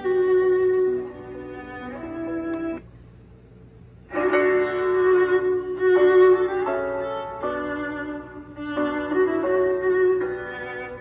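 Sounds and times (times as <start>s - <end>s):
violin melody through radio speaker: 0.0s - 2.8s.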